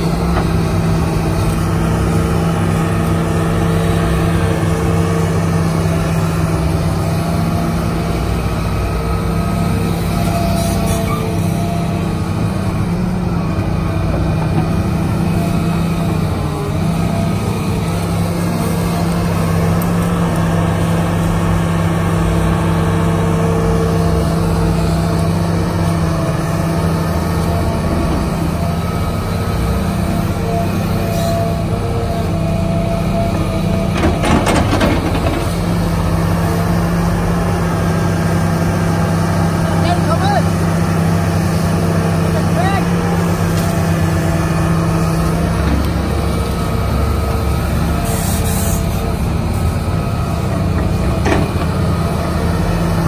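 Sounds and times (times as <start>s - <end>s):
excavator diesel engine running: 0.0s - 53.0s
excavator digging through mud: 0.0s - 53.0s.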